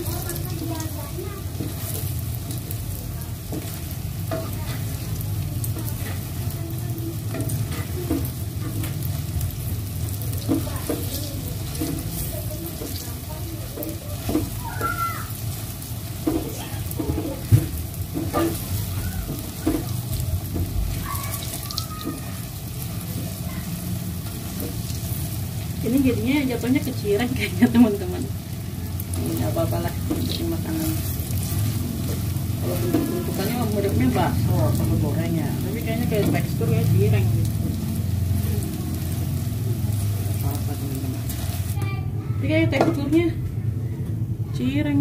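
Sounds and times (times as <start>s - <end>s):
dough sizzling in hot oil: 0.0s - 43.4s
metal spatula scraping a pan: 16.2s - 20.0s.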